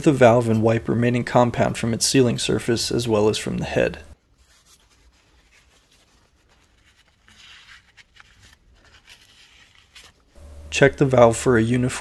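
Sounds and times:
paper towel rubbing on metal: 0:04.2 - 0:11.3.

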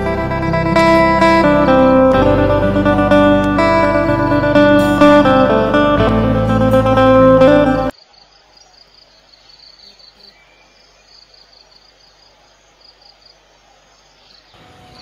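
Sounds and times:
guitar music: 0:00.0 - 0:07.9.

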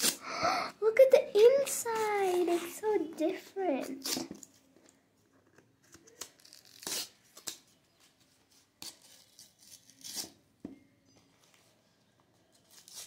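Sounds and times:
paper and cardboard tearing: 0:00.0 - 0:00.2, 0:03.8 - 0:04.5, 0:05.9 - 0:07.6, 0:08.8 - 0:10.4, 0:12.6 - 0:13.0.

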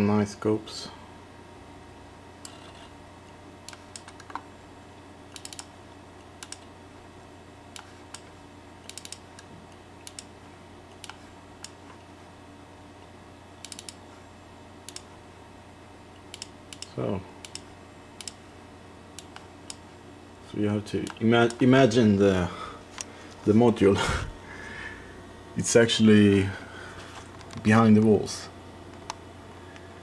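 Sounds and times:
steady low hum: 0:00.0 - 0:30.0
computer mouse clicks: 0:02.4 - 0:02.9, 0:03.6 - 0:04.4, 0:05.3 - 0:06.7, 0:07.7 - 0:10.3, 0:10.9 - 0:12.0, 0:13.6 - 0:14.0, 0:14.9 - 0:15.1, 0:16.3 - 0:18.4, 0:19.2 - 0:19.8.

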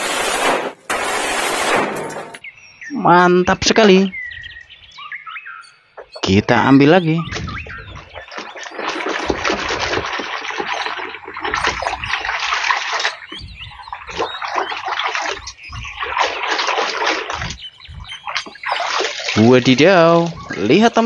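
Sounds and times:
water splashing: 0:06.2 - 0:21.0.

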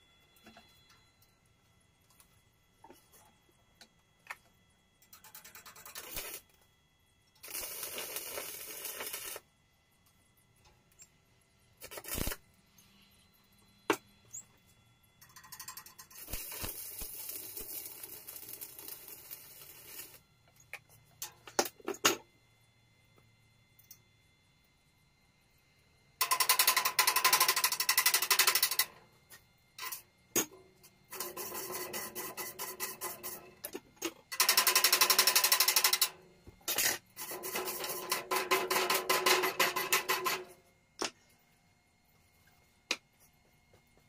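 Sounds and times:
welding arc crackling: 0:05.1 - 0:06.6, 0:07.3 - 0:09.5, 0:11.6 - 0:12.6, 0:15.2 - 0:20.8, 0:34.0 - 0:40.6.

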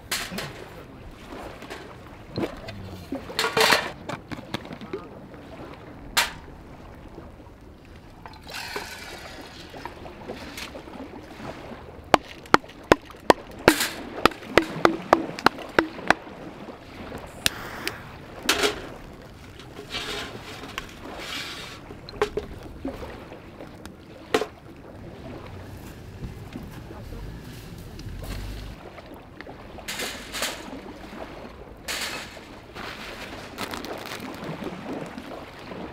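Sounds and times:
scraping and rustling: 0:18.5 - 0:21.8.

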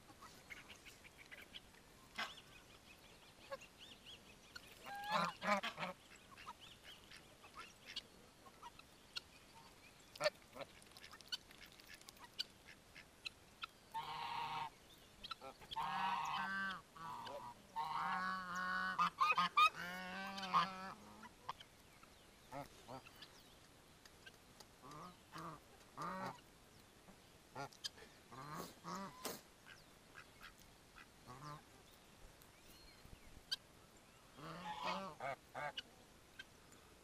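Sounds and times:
geese honking: 0:04.8 - 0:06.6, 0:13.9 - 0:14.7, 0:15.4 - 0:21.3, 0:34.4 - 0:35.8.

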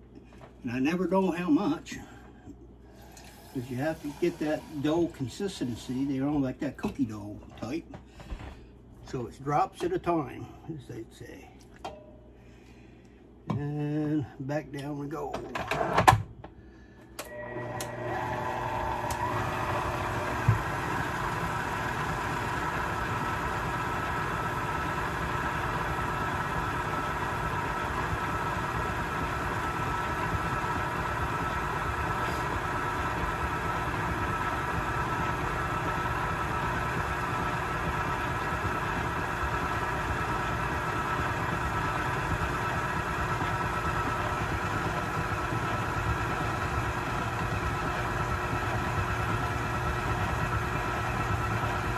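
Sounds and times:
stand mixer motor whine: 0:03.0 - 0:05.2, 0:17.2 - 0:51.9.

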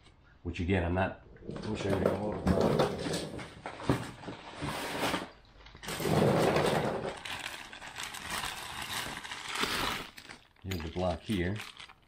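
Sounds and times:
rustling and light clinking: 0:10.1 - 0:12.0.

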